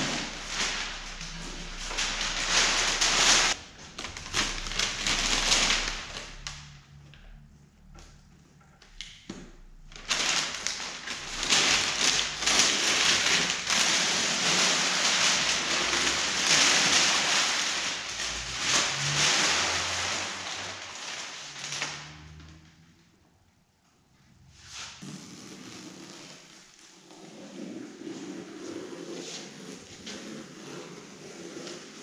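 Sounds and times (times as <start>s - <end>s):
paper crinkling and crackling: 0.0s - 6.8s, 9.9s - 22.7s.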